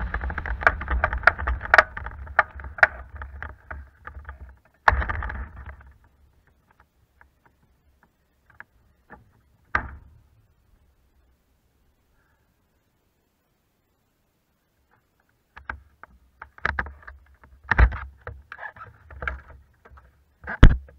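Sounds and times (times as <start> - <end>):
glider rattling over grass: 0.0 - 7.7.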